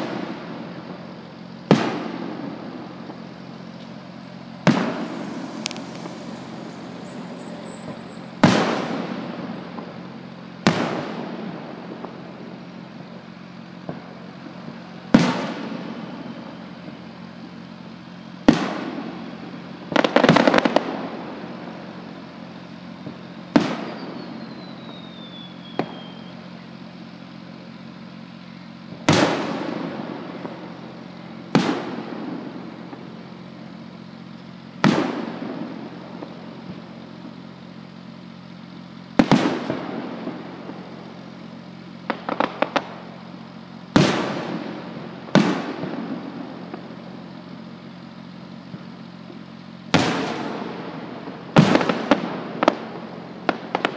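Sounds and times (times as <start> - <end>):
firework bangs echoing: 0.0 - 26.4, 28.2 - 53.9
crackling firework pops: 0.0 - 53.9
falling whistle: 3.8 - 9.0, 23.7 - 26.7.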